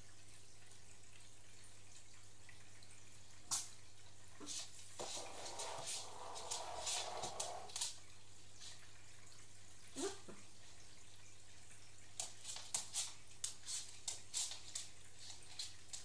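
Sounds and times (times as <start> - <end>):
water trickling and dripping: 0.0 - 16.0
scratchy noise: 5.0 - 7.8.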